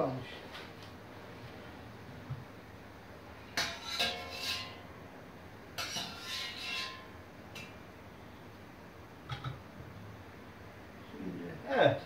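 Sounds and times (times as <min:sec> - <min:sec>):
metal skimmer scraping steel pot: 0:03.6 - 0:04.8, 0:05.8 - 0:07.7.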